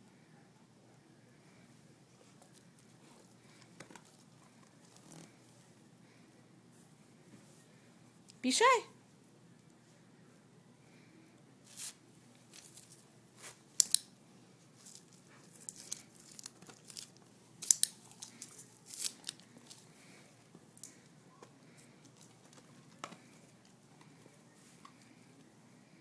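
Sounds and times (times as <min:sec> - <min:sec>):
crinkling and crackling: 0:02.2 - 0:05.5, 0:11.8 - 0:25.4.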